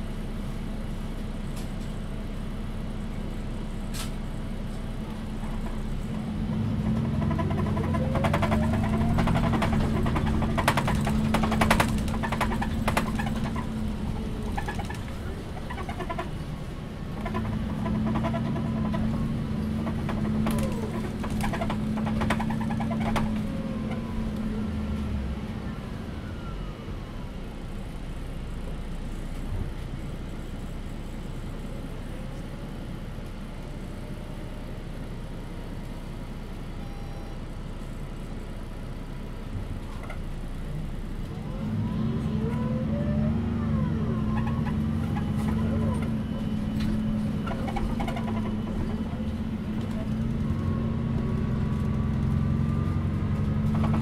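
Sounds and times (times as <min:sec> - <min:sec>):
rolling rumble: 0:00.0 - 0:33.0, 0:38.0 - 0:54.0
bus engine droning: 0:00.0 - 0:54.0
rattling clicks from bus body: 0:01.2 - 0:02.1, 0:03.7 - 0:24.5, 0:39.6 - 0:40.4, 0:44.3 - 0:54.0.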